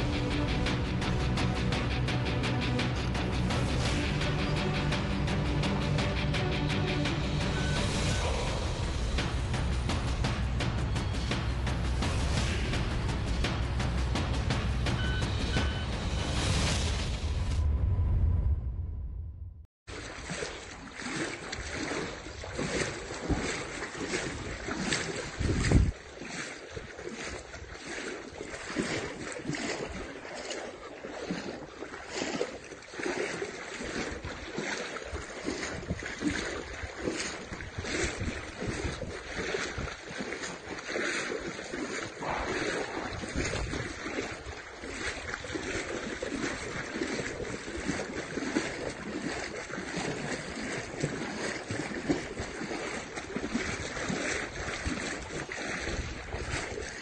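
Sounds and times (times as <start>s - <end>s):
floodwater sloshing and splashing: 0.0s - 17.5s, 19.9s - 57.0s
wind buffeting microphone: 21.6s - 30.1s, 34.0s - 40.8s, 41.7s - 57.0s.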